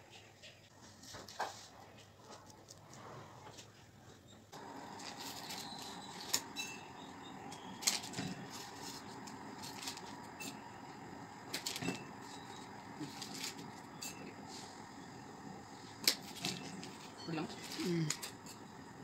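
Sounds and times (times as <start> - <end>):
room hum: 0.0 - 19.0.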